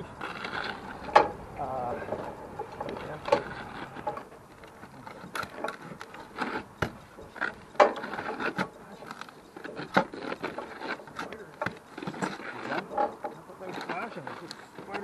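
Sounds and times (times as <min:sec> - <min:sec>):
pry bar knocking and scraping roof: 0:05.1 - 0:15.0.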